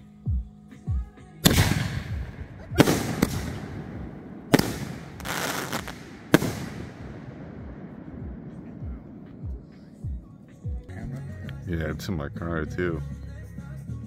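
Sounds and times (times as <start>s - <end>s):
firework bangs: 1.4s - 10.7s
hissing crackle: 1.5s - 10.6s.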